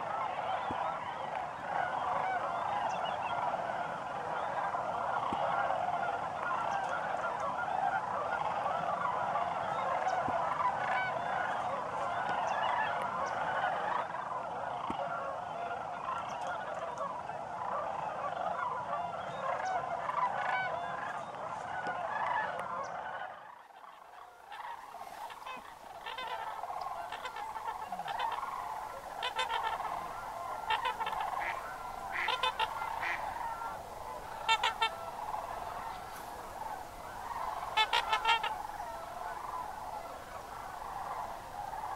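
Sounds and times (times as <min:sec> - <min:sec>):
chorus of cranes calling: 0:00.0 - 0:41.9
sharp high crane calls: 0:24.4 - 0:41.9.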